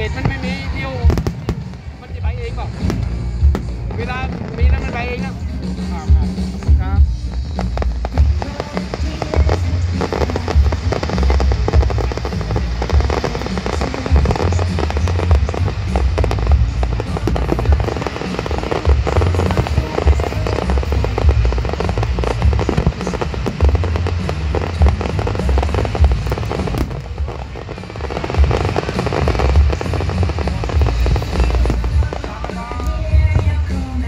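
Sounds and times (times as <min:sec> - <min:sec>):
deep rumble: 0:00.0 - 0:34.0
fireworks bangs: 0:00.0 - 0:34.0.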